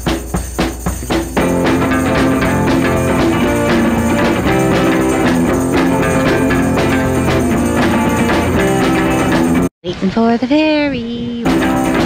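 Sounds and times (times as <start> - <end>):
song with guitar and drums: 0.0 - 9.7, 11.4 - 12.0.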